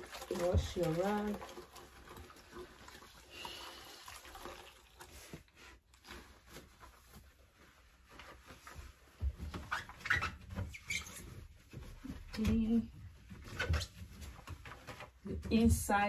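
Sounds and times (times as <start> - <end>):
knocks and handling noise: 5.3 - 15.8
small squeaks: 9.6 - 12.1.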